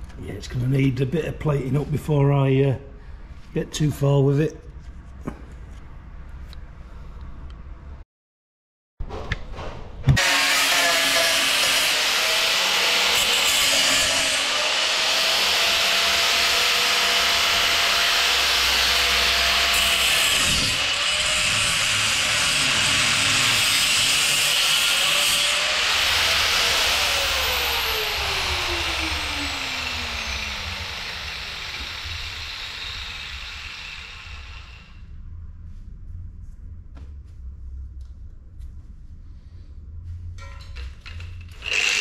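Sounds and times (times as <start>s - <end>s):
angle grinder cutting steel: 10.2s - 34.9s, 41.6s - 42.0s
grinder disc spinning down: 25.8s - 34.9s.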